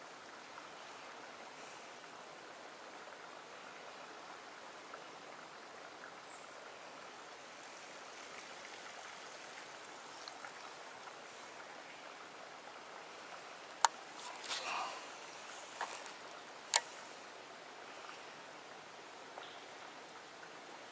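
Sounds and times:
stream flowing over rock: 0.0 - 20.9
faint small ticks: 7.3 - 18.4, 19.3 - 20.6.

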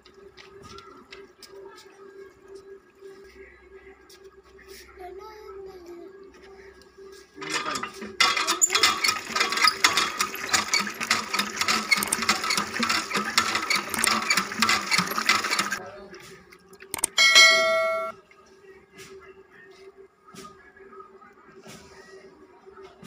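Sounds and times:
water gushing from a pipe: 8.2 - 15.8
short bell chime: 17.2 - 18.1.

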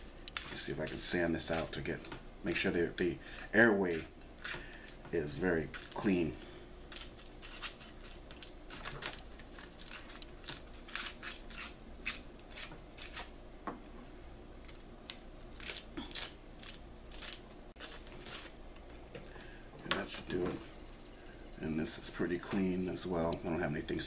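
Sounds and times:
sandpaper scraping inside bone: 3.4 - 8.9, 9.5 - 13.4, 15.6 - 18.6.

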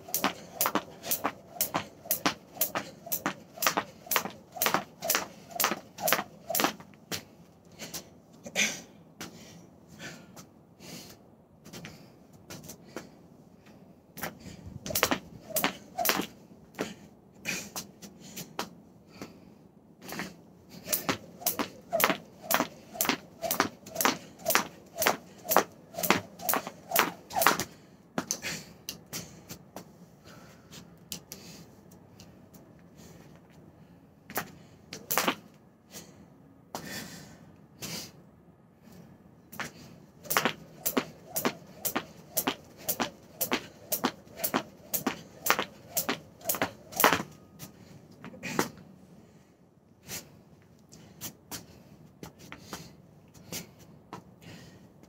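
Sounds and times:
jump rope slapping deck: 0.0 - 6.9, 14.2 - 16.3, 20.9 - 28.4, 34.3 - 35.4, 39.6 - 47.4.

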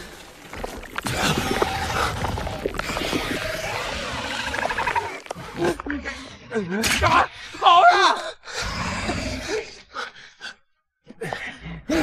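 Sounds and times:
people gasping and breathing heavily: 10.0 - 12.0.

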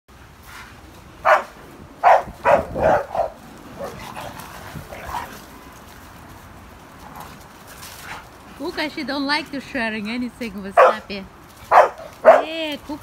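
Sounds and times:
dogs barking: 1.2 - 4.4, 10.8 - 11.1, 11.7 - 12.6.

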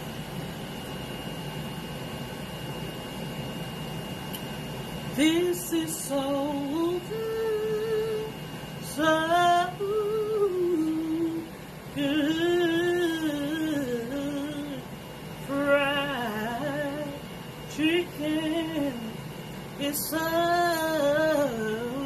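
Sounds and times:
woman singing slow tune: 5.1 - 22.0.

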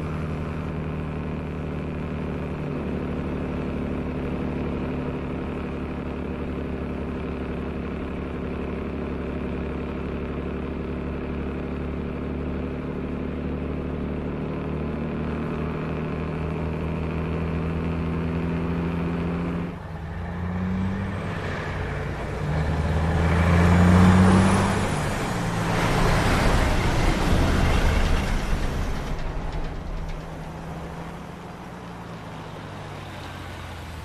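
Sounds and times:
truck diesel engine passing: 15.2 - 34.0.

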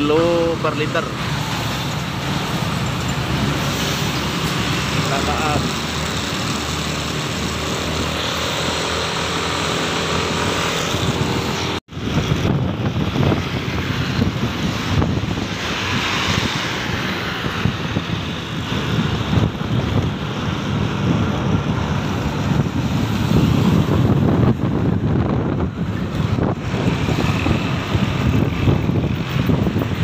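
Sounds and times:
wind buffeting microphone: 10.5 - 30.0.

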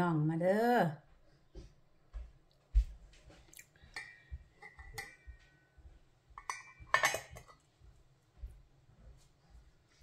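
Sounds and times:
kitchenware knocking and clinking: 4.0 - 5.7, 6.4 - 7.6
light ringing tone: 4.0 - 7.0.

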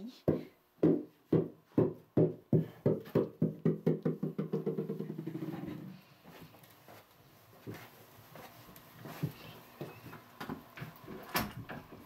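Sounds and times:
rubber ball bouncing on wooden floor: 0.3 - 5.9.

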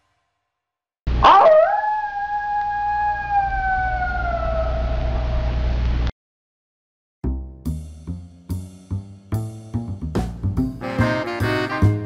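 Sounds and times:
dog howling: 1.2 - 5.4.

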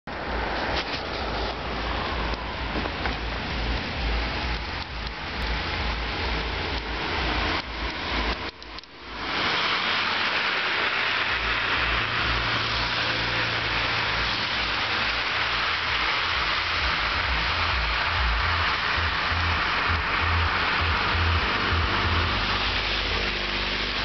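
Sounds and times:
low engine rumble: 0.1 - 24.0
tyres hissing on snow: 0.3 - 24.0.

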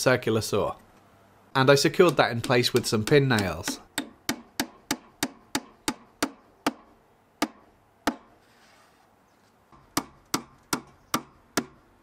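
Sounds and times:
hammer tapping nails: 2.0 - 8.3, 9.8 - 11.8.

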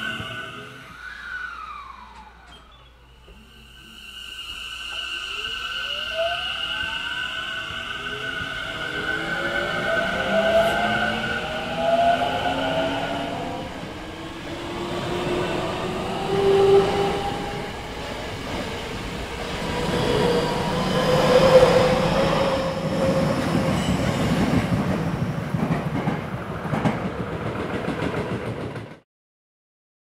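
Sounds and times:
wheels rumbling on rail: 7.4 - 29.0.

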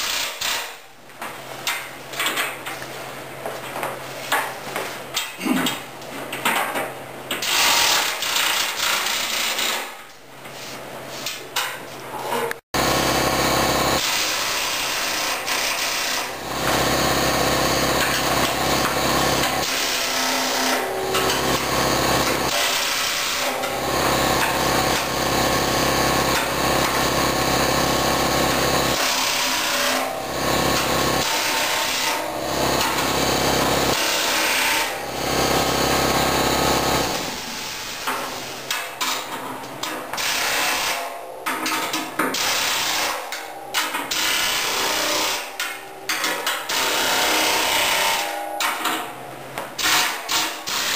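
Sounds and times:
pneumatic impact wrench bursts: 12.8 - 38.4.

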